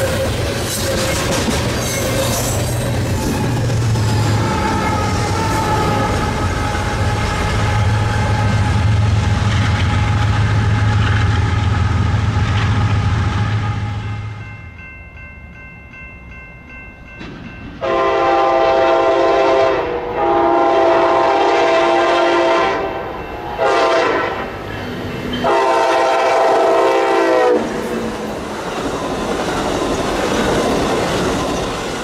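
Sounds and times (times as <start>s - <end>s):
train running and wheel noise: 0.0s - 32.0s
train air horn blasts: 4.2s - 9.2s, 17.8s - 24.6s, 25.4s - 28.1s.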